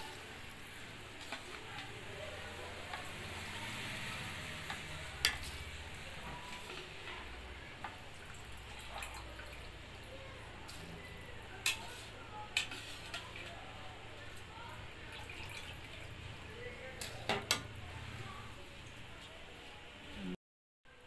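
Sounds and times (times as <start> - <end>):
water bubbling at the boil: 4.4 - 11.6.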